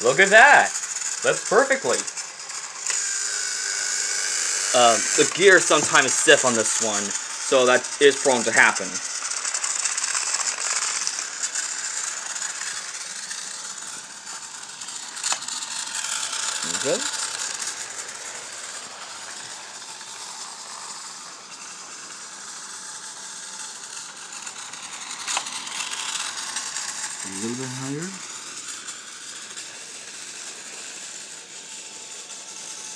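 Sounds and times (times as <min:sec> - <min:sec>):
toy train motor whirring: 0:00.0 - 0:32.9.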